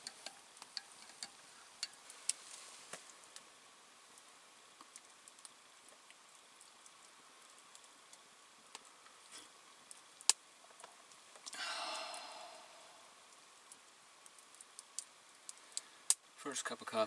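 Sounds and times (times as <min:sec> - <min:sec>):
campfire crackling and popping: 0:00.0 - 0:17.0
breathy rush: 0:11.5 - 0:13.3.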